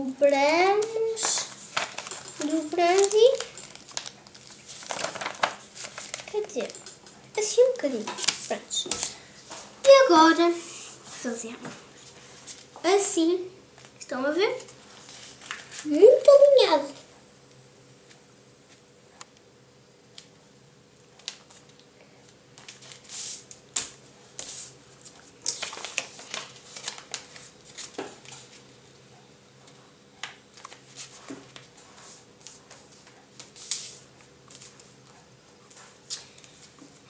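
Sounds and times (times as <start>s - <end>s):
paper rustling and crinkling: 0.8s - 10.1s, 14.7s - 17.0s, 22.6s - 28.7s, 30.5s - 35.0s.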